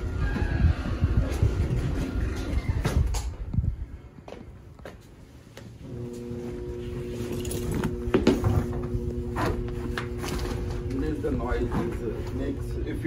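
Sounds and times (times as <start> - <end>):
furnace blower motor humming: 5.8 - 13.0.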